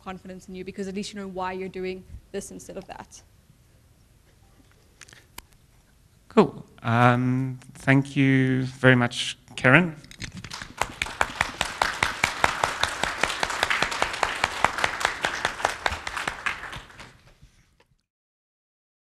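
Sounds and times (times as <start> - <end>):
audience applauding: 10.4 - 17.4.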